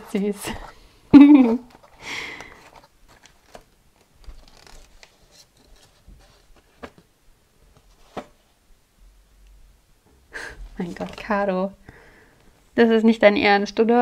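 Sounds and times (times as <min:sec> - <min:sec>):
paper rustling: 0:00.0 - 0:08.5, 0:10.8 - 0:11.4.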